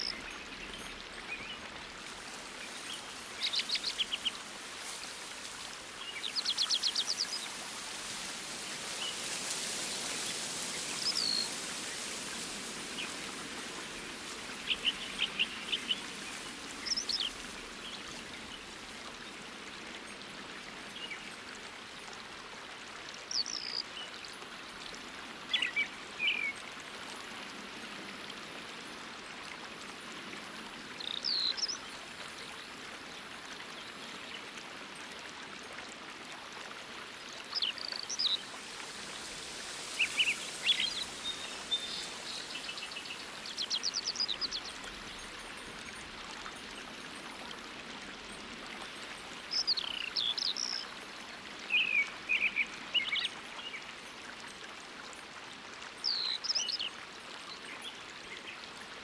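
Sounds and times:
running water: 0.0s - 59.0s
small birds chirping and trilling: 37.6s - 45.4s.

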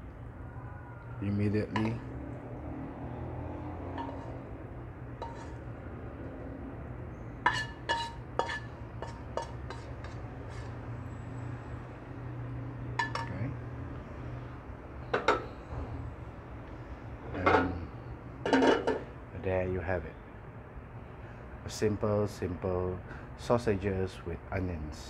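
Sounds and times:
spatula clinking on ceramic dish: 4.0s - 4.4s, 7.5s - 10.6s.

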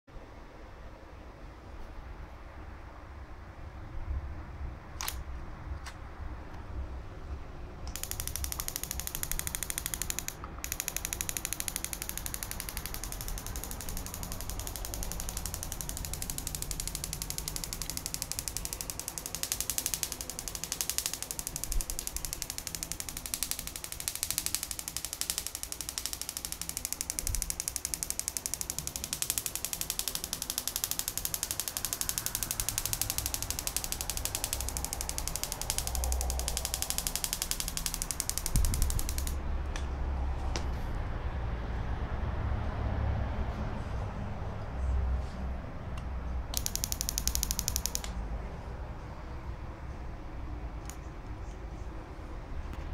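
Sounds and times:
crackling electric sparks: 7.9s - 39.4s, 46.6s - 48.1s.

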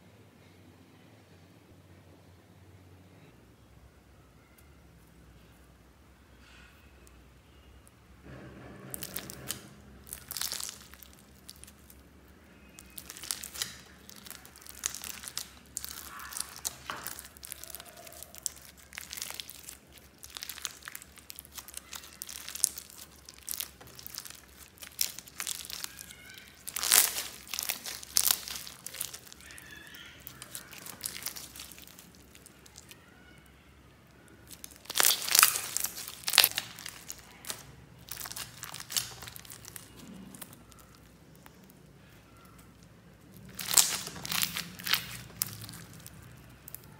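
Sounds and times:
slime squelching and crackling: 8.8s - 46.9s.

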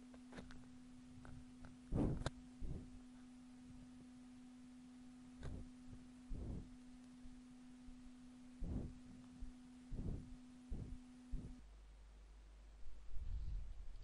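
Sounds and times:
faint low hum: 0.0s - 14.0s
soft low thumps: 1.3s - 3.1s, 5.4s - 11.6s.

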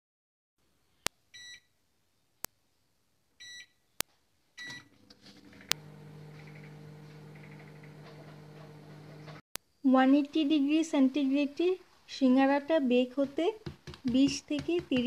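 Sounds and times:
microwave oven humming: 4.7s - 9.4s.

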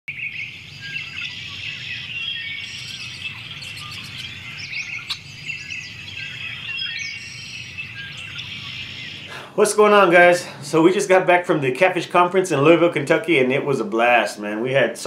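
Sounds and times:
small birds chirping and singing: 0.1s - 11.1s
low steady hum: 0.1s - 15.0s.

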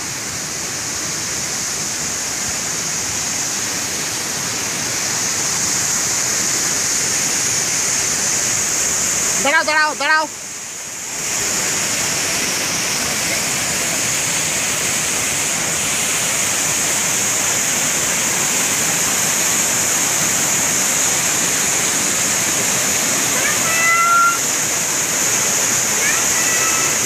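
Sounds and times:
waterfall pouring over rocks: 0.0s - 27.0s
short high-pitched call: 23.3s - 24.5s.

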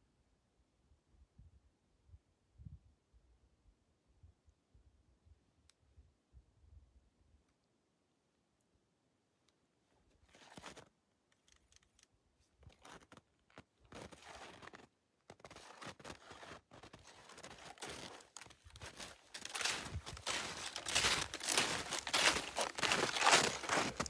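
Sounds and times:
footsteps crunching in snow: 13.9s - 24.0s.

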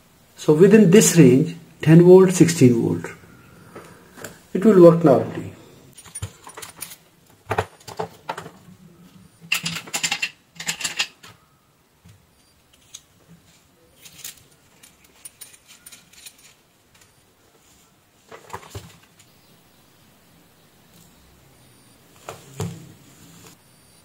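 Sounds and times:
soldering irons rattling in metal stands: 9.5s - 11.3s.

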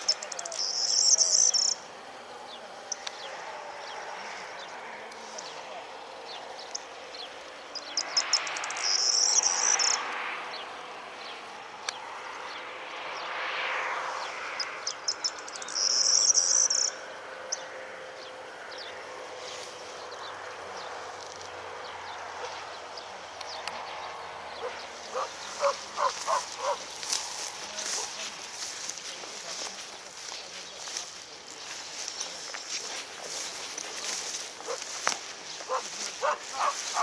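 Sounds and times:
high cricket-like trill: 0.0s - 1.9s, 7.8s - 10.0s, 14.6s - 17.0s
short lower insect calls: 0.0s - 5.6s, 6.3s - 10.2s, 14.1s - 17.7s, 19.6s - 29.1s
insects chirping: 0.0s - 37.0s.

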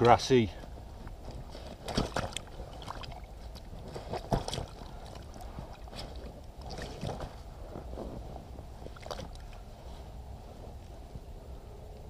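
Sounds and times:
landing net rustling: 1.3s - 9.6s
fish slapping on mat: 1.8s - 7.4s.

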